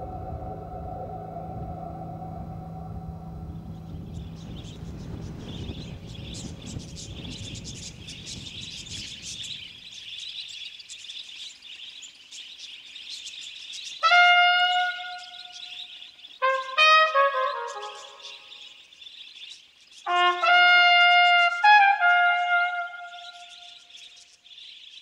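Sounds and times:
low rumble: 0:00.0 - 0:09.7
dense chirping chorus: 0:00.0 - 0:20.4
trumpet playing: 0:14.0 - 0:15.6, 0:16.4 - 0:18.3, 0:20.1 - 0:23.7.

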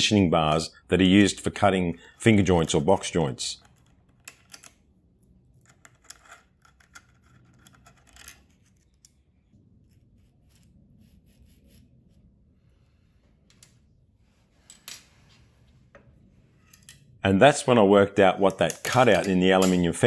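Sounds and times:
small metallic clicks and scrapes: 0:05.5 - 0:09.3.

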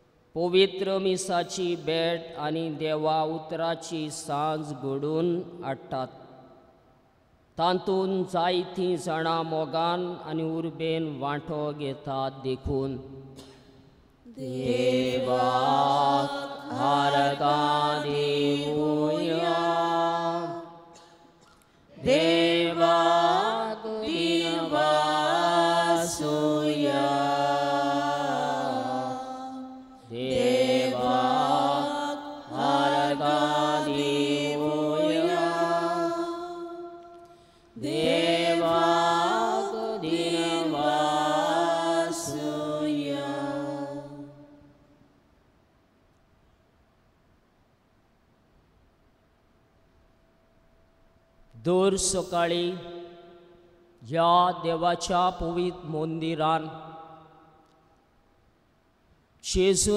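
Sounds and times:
person chanting a hymn: 0:00.4 - 0:06.4, 0:14.3 - 0:21.1, 0:21.9 - 0:44.7, 0:51.6 - 0:57.4, 0:59.4 - 0:59.9.

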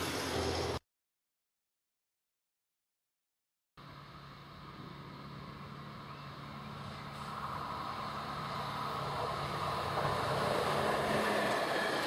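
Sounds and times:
diesel engine hum: 0:00.0 - 0:00.8, 0:03.8 - 0:12.0
wheels on rails: 0:03.8 - 0:12.0.

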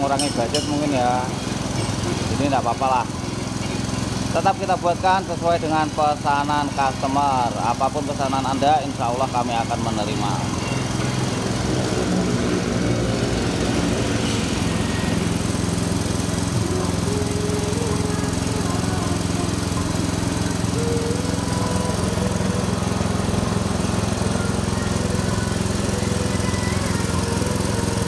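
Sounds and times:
petrol engine running under load: 0:00.0 - 0:28.0.

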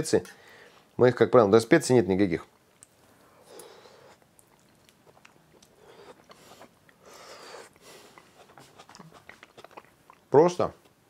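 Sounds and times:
faint chewing: 0:02.4 - 0:11.0.

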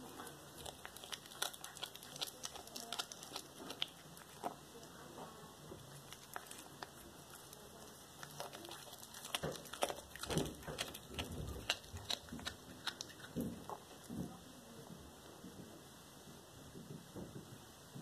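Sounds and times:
cat chewing and crunching: 0:00.0 - 0:15.6.

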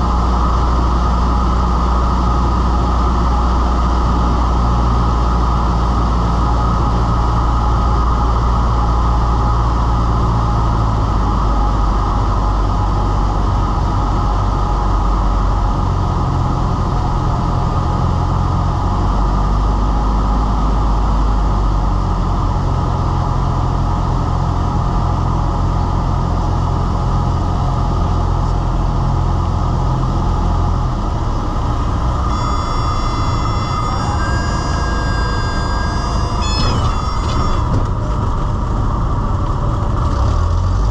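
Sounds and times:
light aircraft engine and propeller: 0:00.0 - 0:40.9
high steady whistling tone: 0:32.1 - 0:38.1.

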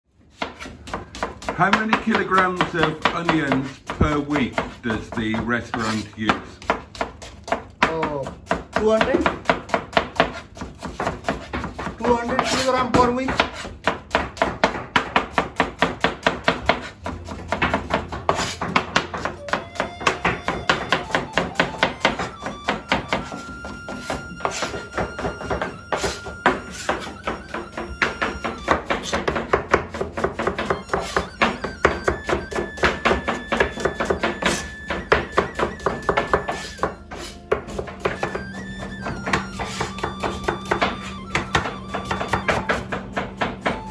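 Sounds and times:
background music: 0:17.2 - 0:43.9.

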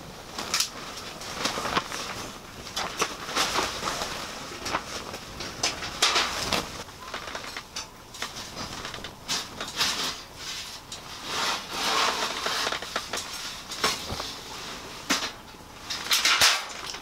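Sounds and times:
folding metal table clicks and knocks: 0:05.4 - 0:06.4, 0:15.1 - 0:17.0.

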